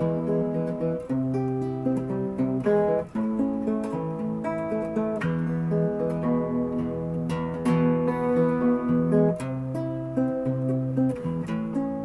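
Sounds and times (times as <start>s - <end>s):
acoustic guitar strummed chords: 0.0s - 12.0s.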